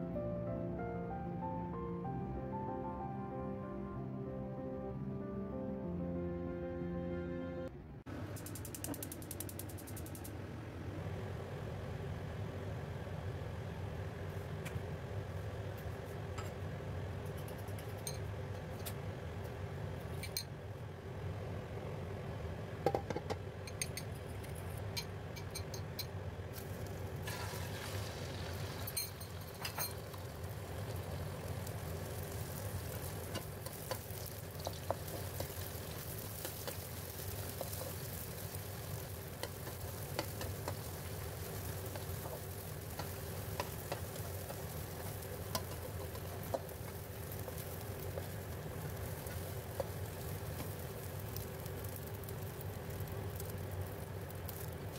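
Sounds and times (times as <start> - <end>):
oil and eggs sizzling: 8.1 - 13.3, 21.4 - 54.9
utensils clinking against pan: 20.1 - 20.5, 22.9 - 26.1, 28.8 - 30.0.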